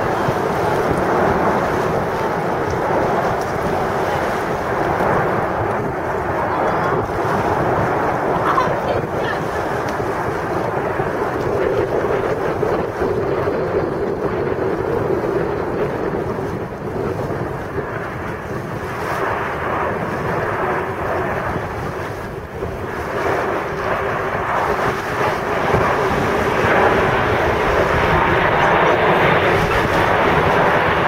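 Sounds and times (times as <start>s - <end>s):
jet engines passing overhead: 0.0s - 31.0s
wind rumbling on microphone: 0.0s - 31.0s.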